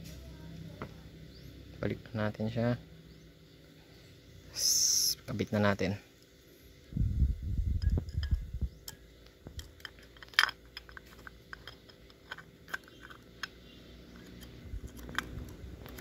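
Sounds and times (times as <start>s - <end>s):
metal parts clicking: 7.8s - 16.0s.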